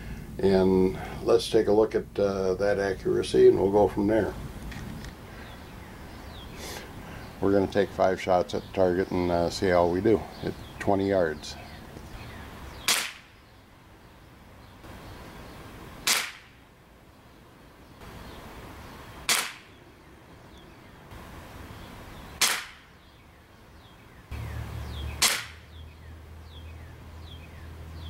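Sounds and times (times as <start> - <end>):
air rifle shots: 12.8 - 13.4, 16.0 - 16.6, 19.2 - 19.8, 22.4 - 23.0, 25.2 - 25.7.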